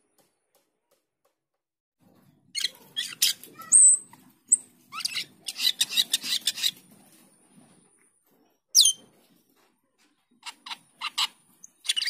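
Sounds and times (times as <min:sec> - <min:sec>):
starling calling: 0:02.6 - 0:06.8.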